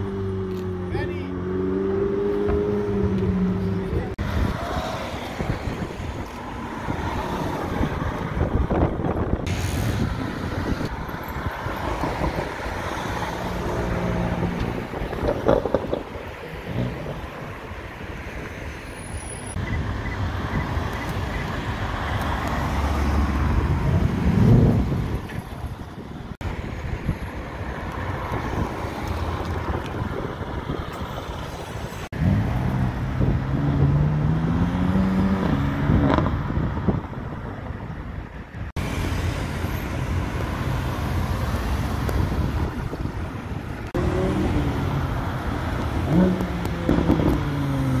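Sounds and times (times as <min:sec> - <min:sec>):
sports car engines accelerating: 0:00.0 - 0:18.4, 0:32.1 - 0:37.7, 0:43.8 - 0:48.0
tyre and traffic noise: 0:00.0 - 0:48.0.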